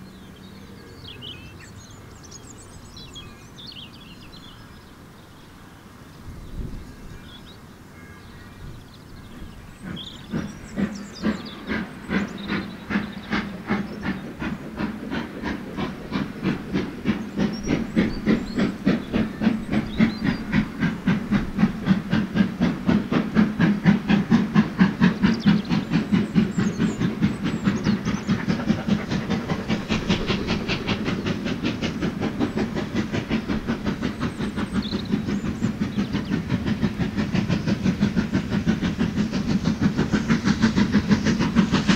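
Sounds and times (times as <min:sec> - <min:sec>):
steam locomotive chuffing: 0:00.0 - 0:07.6, 0:08.2 - 0:41.9.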